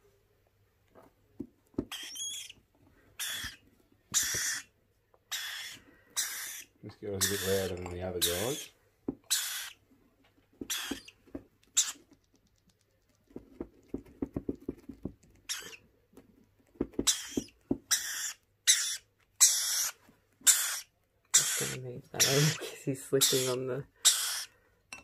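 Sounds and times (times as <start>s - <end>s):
chick begging squawks: 3.2s - 4.7s, 5.3s - 8.7s, 9.3s - 9.8s, 10.7s - 11.1s, 17.1s - 22.6s, 23.2s - 24.5s.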